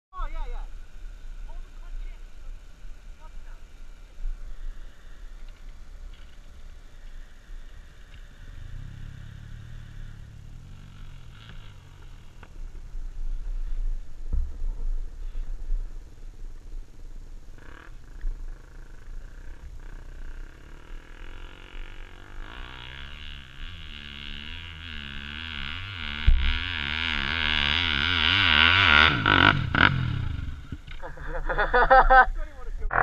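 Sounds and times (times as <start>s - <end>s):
dirt bike engine revving: 4.4s - 12.8s, 17.5s - 32.2s.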